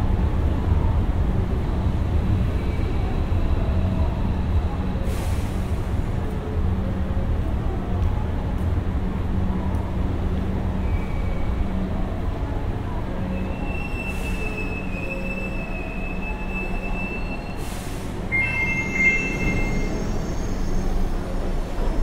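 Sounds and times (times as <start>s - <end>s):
train rumble: 0.0s - 22.0s
train wheels squealing on rails: 2.4s - 6.0s, 10.7s - 11.8s, 13.2s - 22.0s.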